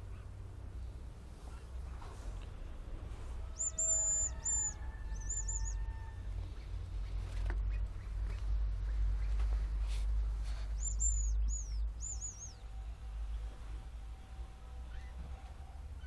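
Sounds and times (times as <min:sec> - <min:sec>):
grouse high thin whistles: 0:03.5 - 0:05.9, 0:10.5 - 0:12.6.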